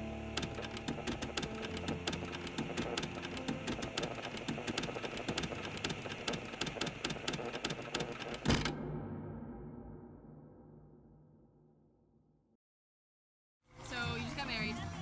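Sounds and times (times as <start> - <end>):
rapid clicks: 0.1 - 8.7.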